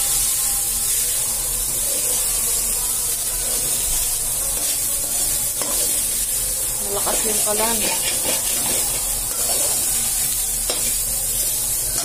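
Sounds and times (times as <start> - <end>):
rice sizzling in a metal pan: 0.0 - 12.0
spatula stirring: 3.3 - 12.0.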